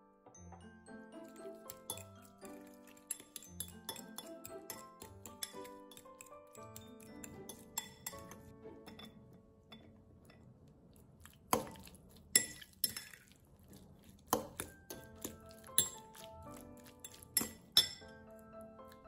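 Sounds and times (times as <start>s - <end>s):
soft background music: 0.0s - 19.0s
fork clinking against glass bowl: 1.2s - 9.1s, 11.6s - 13.2s, 14.3s - 18.1s.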